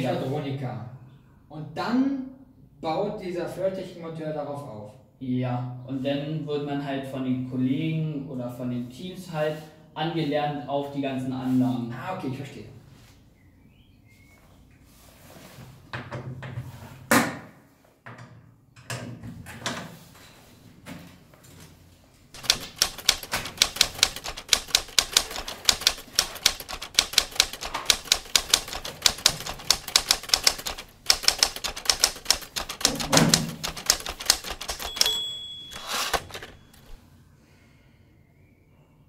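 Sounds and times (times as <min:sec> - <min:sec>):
typewriter bell ding: 0:22.4 - 0:37.0
typewriter key clacks: 0:22.4 - 0:37.0.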